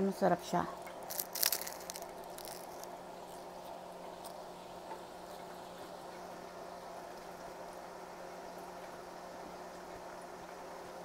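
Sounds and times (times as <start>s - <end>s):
hot oil bubbling in fryer: 0.0s - 11.0s
steady low hum: 0.0s - 11.0s
light crackles: 0.7s - 6.0s.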